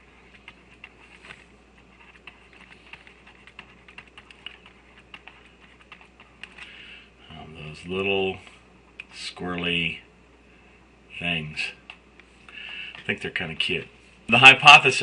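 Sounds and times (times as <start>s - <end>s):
stylus tapping on tablet: 2.1s - 6.7s.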